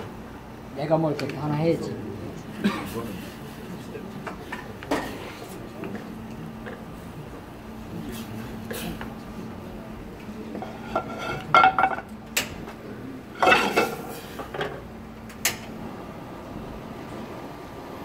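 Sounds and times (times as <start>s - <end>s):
steady low hum: 0.0s - 18.0s
metal pans clanking on grates: 10.6s - 12.1s, 13.4s - 14.8s.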